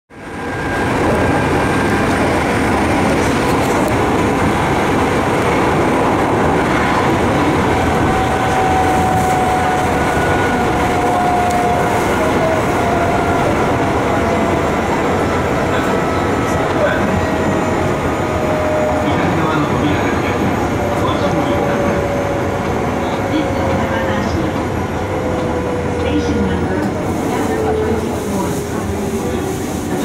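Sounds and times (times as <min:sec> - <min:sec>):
train running on rails: 0:00.1 - 0:30.0.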